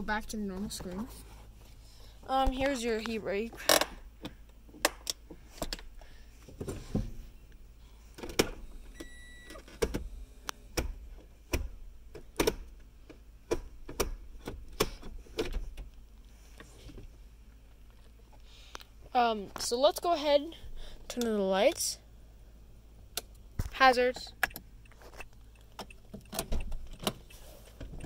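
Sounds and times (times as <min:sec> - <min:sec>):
short beep: 0:09.0 - 0:09.6.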